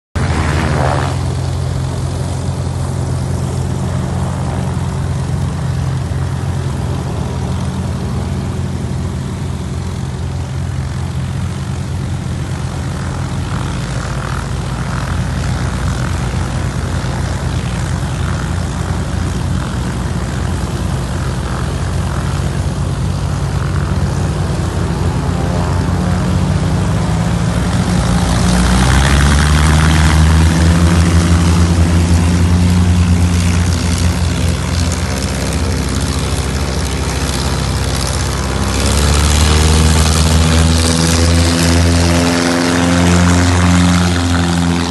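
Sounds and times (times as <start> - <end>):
propeller airplane engines running: 0.1 - 44.9.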